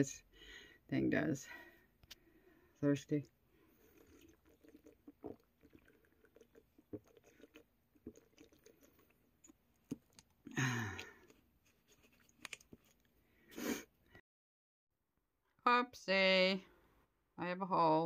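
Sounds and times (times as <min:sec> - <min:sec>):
person drinking from a bottle: 0:03.6 - 0:13.1.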